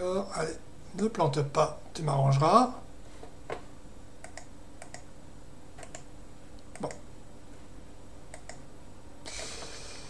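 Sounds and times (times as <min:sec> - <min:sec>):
computer mouse clicks: 0:04.2 - 0:05.1, 0:05.8 - 0:07.0, 0:08.3 - 0:08.6.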